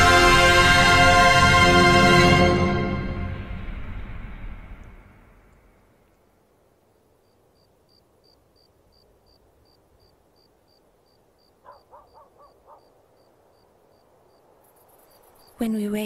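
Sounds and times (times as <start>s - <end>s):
cricket chirping: 4.6s - 15.7s
bird calling: 11.5s - 13.0s.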